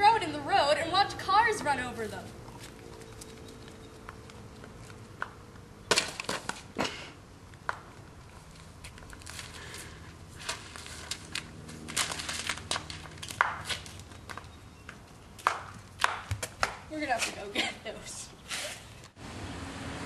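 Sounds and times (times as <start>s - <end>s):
paper crunching and crinkling: 8.4s - 14.2s.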